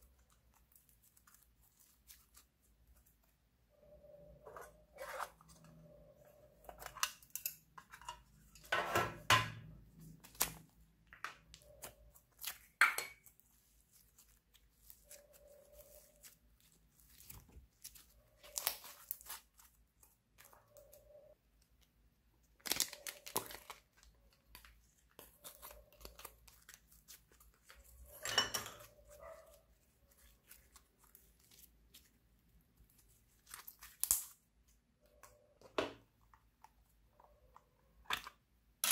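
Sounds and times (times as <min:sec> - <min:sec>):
slime squishing and crackling: 0:11.5 - 0:21.8, 0:22.4 - 0:28.2, 0:28.9 - 0:34.6.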